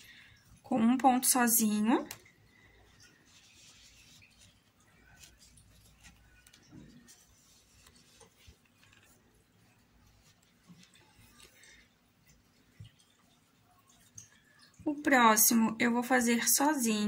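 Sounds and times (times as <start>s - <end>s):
faint yarn rustling: 0.0s - 14.9s.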